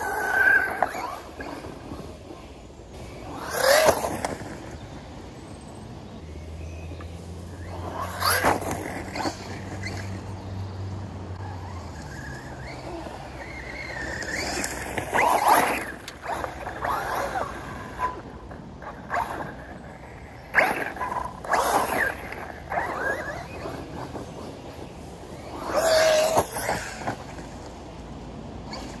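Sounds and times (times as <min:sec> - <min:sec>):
rc car motor whining: 0:00.0 - 0:05.4, 0:06.9 - 0:27.7.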